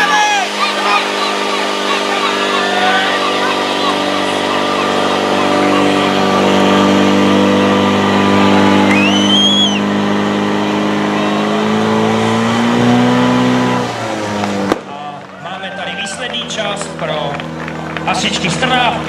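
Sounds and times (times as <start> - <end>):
pump engine droning at high revs: 0.0 - 15.3, 16.1 - 19.0
high whistle-like tone: 8.8 - 9.9.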